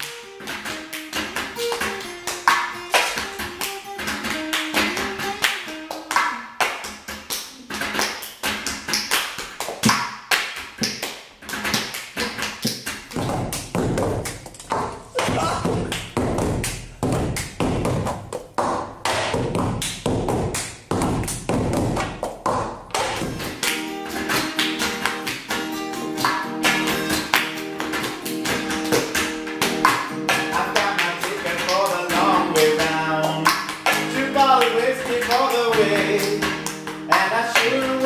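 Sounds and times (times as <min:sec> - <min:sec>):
guitar notes: 0:00.0 - 0:09.1, 0:22.9 - 0:38.0
hand claps: 0:00.0 - 0:38.0.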